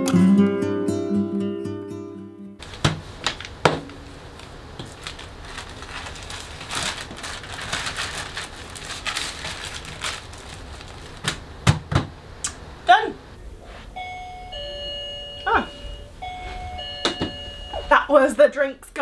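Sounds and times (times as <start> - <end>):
paper rustling and crinkling: 2.6 - 11.8.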